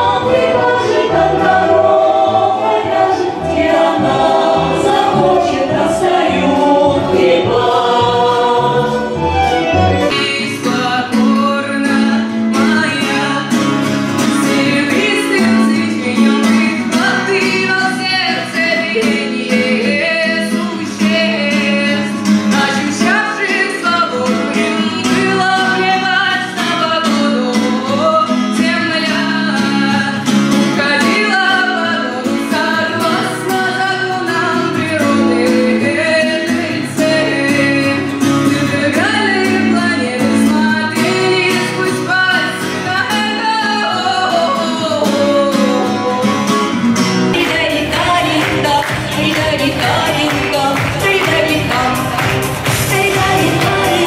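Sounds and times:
music with strong bass: 0:00.0 - 0:10.5, 0:47.1 - 0:54.0
person singing with instruments: 0:00.0 - 0:54.0.

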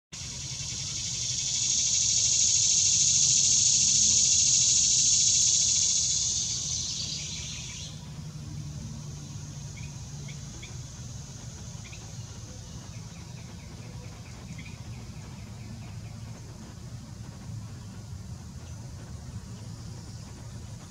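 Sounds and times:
loud insect buzzing: 0:00.2 - 0:12.4.

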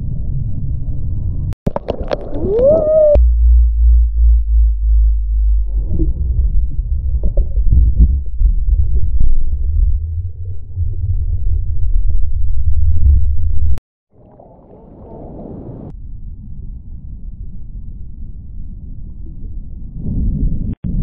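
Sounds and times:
muffled water rumble: 0:00.0 - 0:21.0
crackling bubbles: 0:01.6 - 0:03.2.

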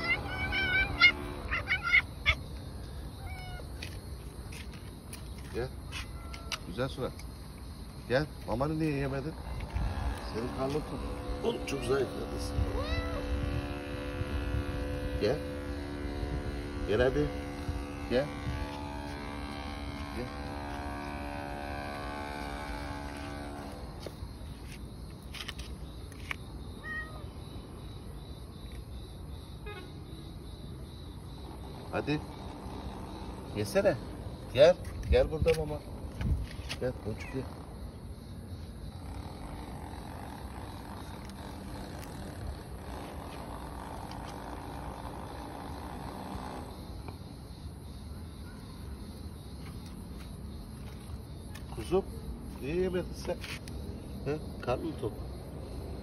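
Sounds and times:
cat meow: 0:00.0 - 0:02.4, 0:03.2 - 0:03.7, 0:05.9 - 0:06.7, 0:12.7 - 0:13.3, 0:26.8 - 0:27.4
steady humming tone: 0:00.0 - 0:04.5, 0:08.8 - 0:25.8, 0:35.8 - 0:47.8
road traffic rumble: 0:00.0 - 0:56.0.

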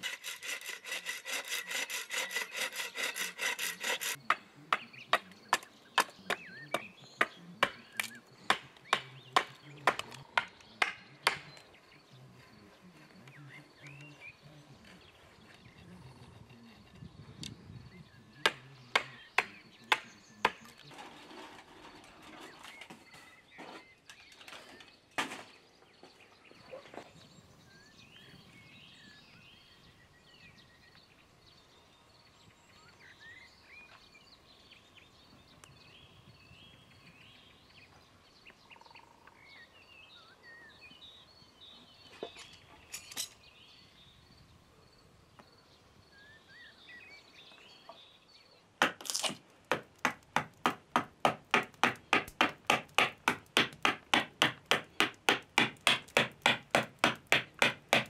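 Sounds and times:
faint birdsong: 0:00.0 - 0:58.0
scattered knocks: 0:49.7 - 0:58.0.

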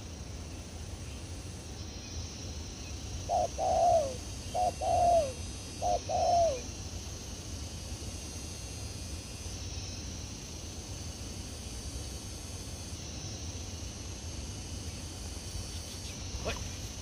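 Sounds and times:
dove cooing: 0:03.3 - 0:06.7.

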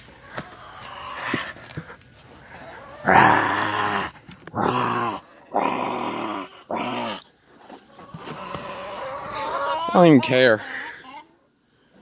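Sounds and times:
man growling dinosaur roars: 0:03.0 - 0:07.2.

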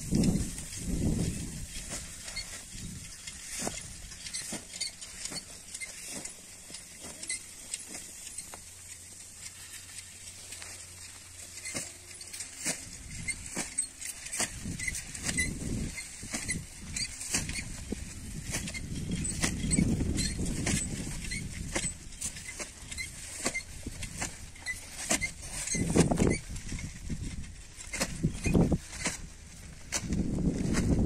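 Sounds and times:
hose rustling and crackling: 0:00.0 - 0:31.0.

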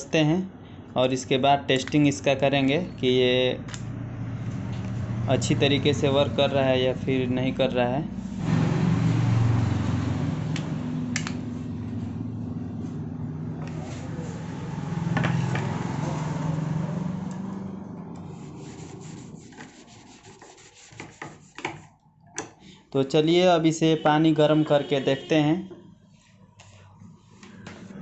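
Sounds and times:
plastic rubbing and scraping: 0:18.2 - 0:22.0.

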